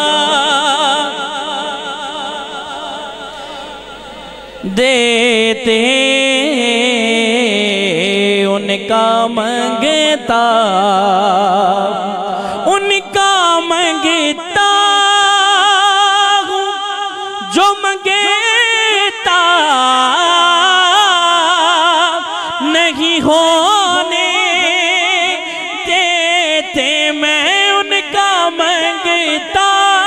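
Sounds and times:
man singing into a microphone: 0:00.0 - 0:30.0
singer breathing: 0:03.1 - 0:04.7, 0:12.3 - 0:12.7.

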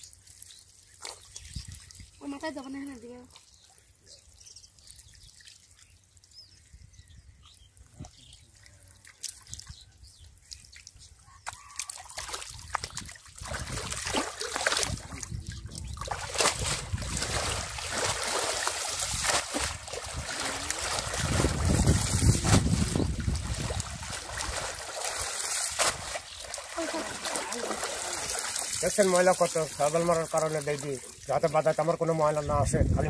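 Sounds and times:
water splashing and sloshing: 0:00.0 - 0:06.6, 0:07.8 - 0:32.5
faint water drips: 0:00.0 - 0:21.5, 0:22.8 - 0:32.4.

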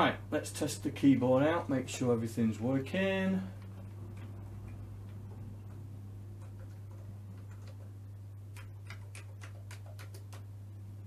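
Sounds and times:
keyboard keys clicking: 0:06.4 - 0:07.9, 0:08.5 - 0:10.5.

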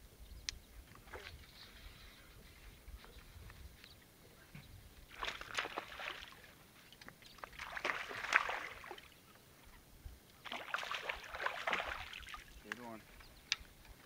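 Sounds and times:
fish splashing in water: 0:05.1 - 0:06.6, 0:07.3 - 0:09.2, 0:10.4 - 0:12.6.

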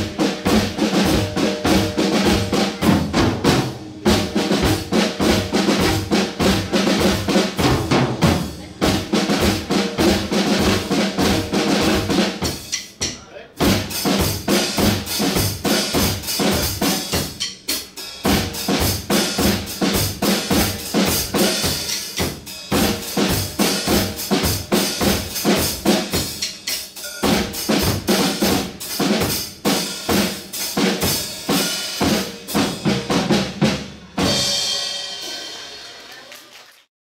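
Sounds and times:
fast drum duet: 0:00.0 - 0:36.4
cymbal ringing: 0:26.4 - 0:27.4.

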